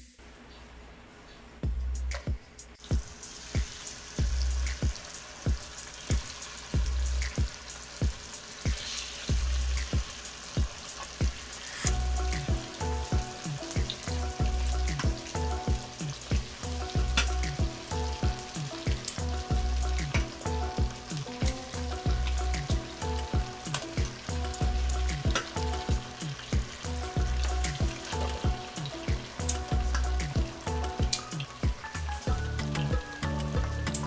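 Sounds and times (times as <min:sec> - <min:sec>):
background music with steady beat: 0:01.5 - 0:34.0
ribs sizzling in hot oil: 0:02.8 - 0:34.0.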